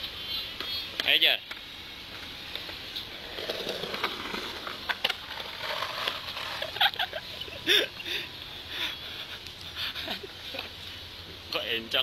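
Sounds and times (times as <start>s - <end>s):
skateboard clattering on concrete: 3.2s - 7.1s.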